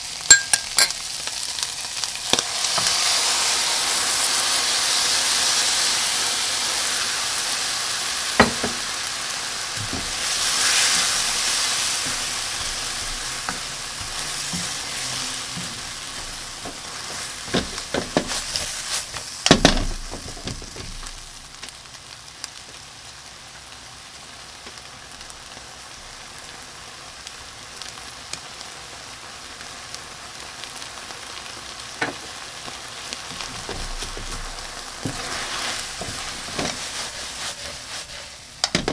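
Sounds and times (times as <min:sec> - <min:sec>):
food sizzling in a frying pan: 0:00.0 - 0:38.9
spatula knocking against pan: 0:08.4 - 0:08.8.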